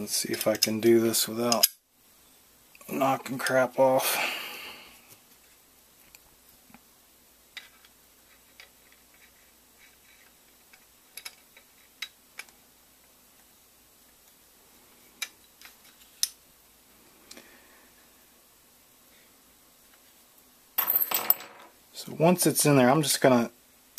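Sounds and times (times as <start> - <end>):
metal parts clicking and knocking: 10.7 - 12.5, 20.8 - 21.7.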